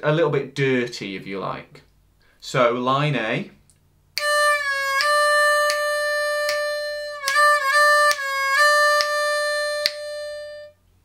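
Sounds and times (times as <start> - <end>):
harmonica bent draw notes: 4.2 - 10.8.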